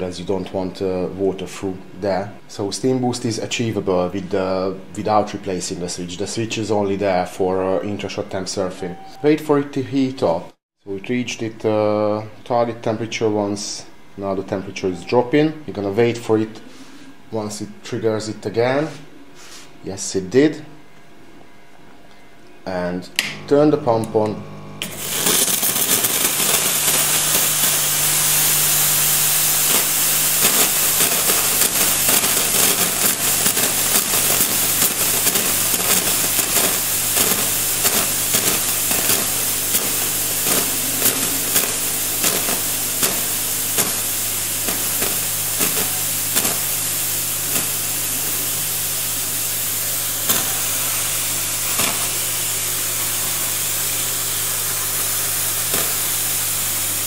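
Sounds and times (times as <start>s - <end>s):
pump humming: 23.2s - 57.0s
steam wand hissing and spitting: 24.8s - 57.0s.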